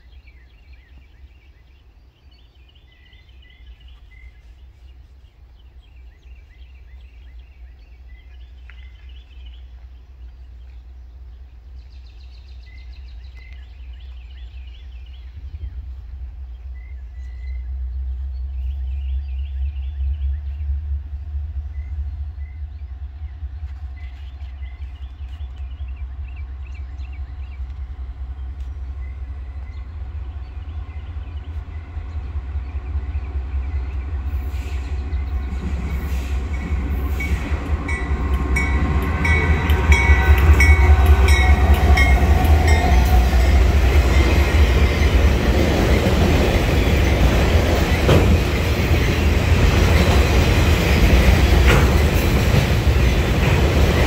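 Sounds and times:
diesel locomotive rumble: 0:02.6 - 0:54.0
train wheels clickety-clack: 0:33.6 - 0:54.0.

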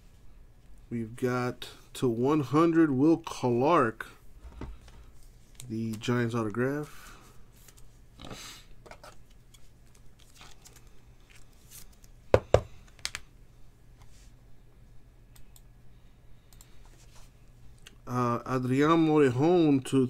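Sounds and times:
cards rustling in plastic sleeves: 0:04.8 - 0:08.0, 0:09.1 - 0:13.3.

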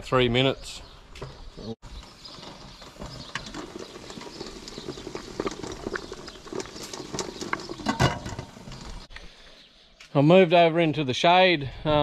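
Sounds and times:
water boiling in a pot: 0:01.9 - 0:09.1.

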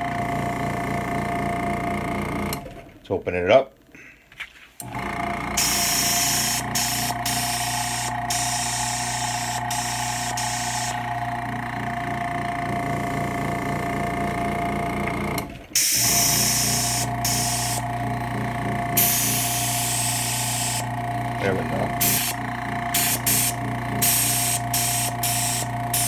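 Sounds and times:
compressor humming: 0:00.0 - 0:04.2, 0:04.8 - 0:26.0
air hissing through airbrush: 0:05.6 - 0:11.0, 0:15.8 - 0:17.8, 0:19.0 - 0:20.9, 0:22.0 - 0:26.0.

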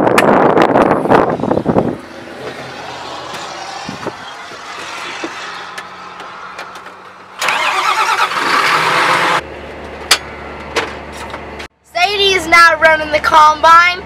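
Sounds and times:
wind noise: 0:00.0 - 0:06.5
starter cranking: 0:05.2 - 0:09.4
tractor diesel engine idling: 0:07.1 - 0:09.8.

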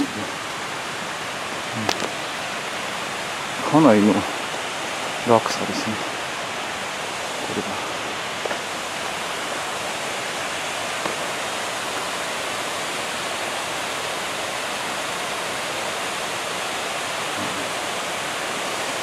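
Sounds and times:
waterfall rushing: 0:00.0 - 0:19.0.

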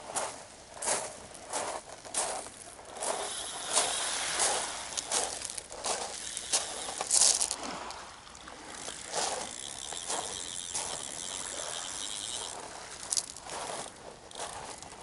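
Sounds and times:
surf washing on beach: 0:03.0 - 0:08.2.

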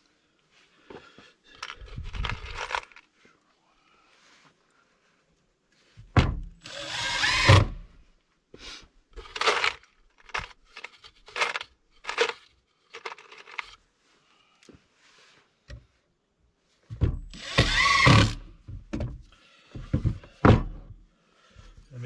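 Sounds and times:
drill boring into wood: 0:06.6 - 0:07.9, 0:17.3 - 0:18.5
knocking and handling noise: 0:16.8 - 0:17.4, 0:18.6 - 0:21.0.

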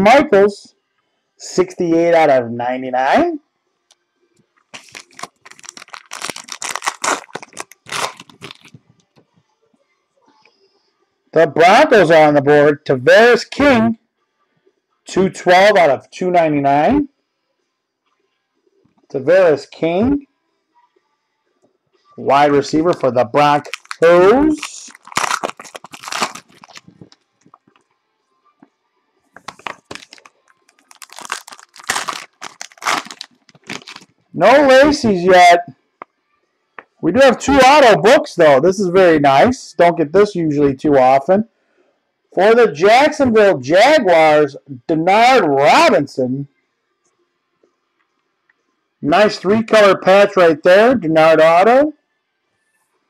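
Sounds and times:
foil wrapper crinkling: 0:04.7 - 0:08.8, 0:23.6 - 0:27.8, 0:29.4 - 0:34.1.

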